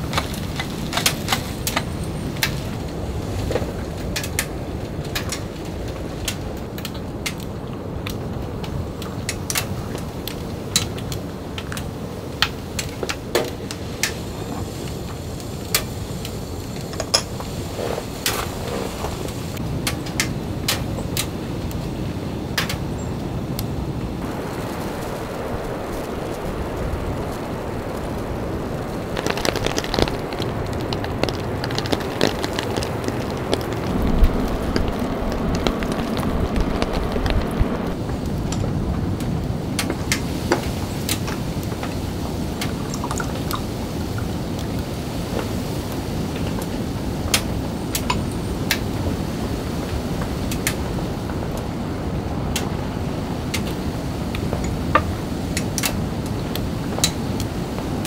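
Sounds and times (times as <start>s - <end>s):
rain on tent fabric: 0.0s - 58.0s
wood crackling in a stove: 0.0s - 58.0s.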